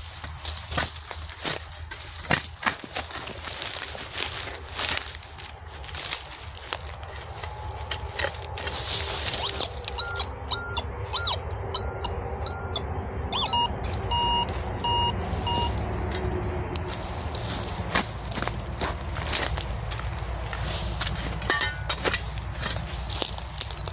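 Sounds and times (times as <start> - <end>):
hand hoe digging in soil: 0.0 - 10.2, 13.9 - 23.9
metal detector beeps: 9.4 - 15.8.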